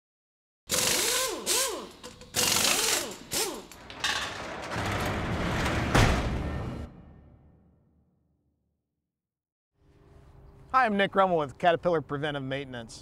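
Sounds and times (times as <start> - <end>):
roller shutter door running up: 3.3 - 6.9.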